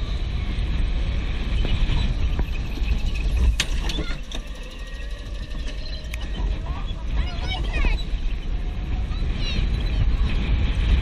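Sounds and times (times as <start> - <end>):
go-kart engine rumble: 0.0 - 11.0
kart squeaks and clicks: 1.5 - 8.6.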